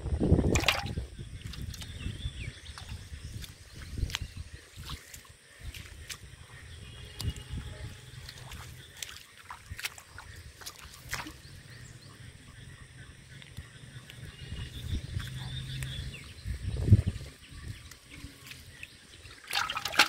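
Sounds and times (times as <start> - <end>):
footsteps through wet grass: 2.7 - 11.8, 13.4 - 20.0.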